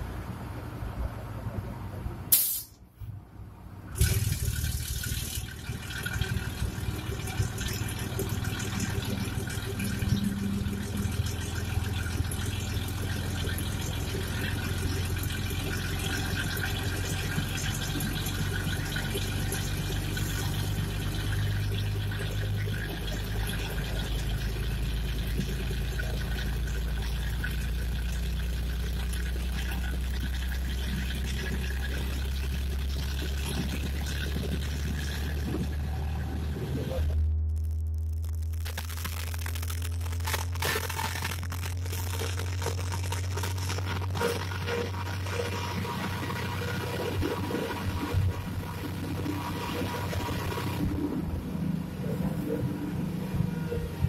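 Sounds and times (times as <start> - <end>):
wheel and rail running noise: 0.0 - 38.6, 40.0 - 54.0
diesel engine droning: 0.0 - 54.0
sharp click: 2.3 - 2.8.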